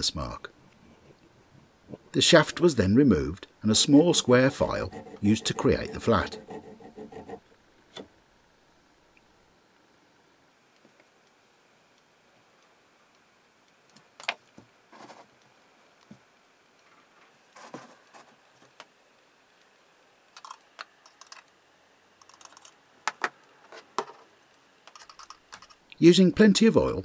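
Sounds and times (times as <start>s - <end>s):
metal parts clicking: 22.2s - 22.8s, 24.9s - 25.8s.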